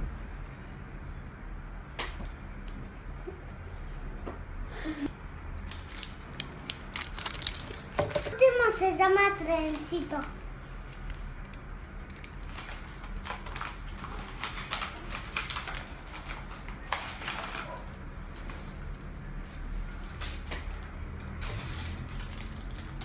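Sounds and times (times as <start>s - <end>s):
wrapper crinkling: 5.6s - 8.3s, 9.6s - 23.0s.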